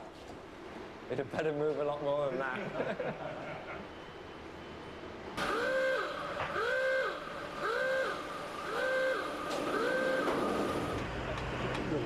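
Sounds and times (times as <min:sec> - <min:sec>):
roller coaster machinery whine: 0:02.8 - 0:12.0.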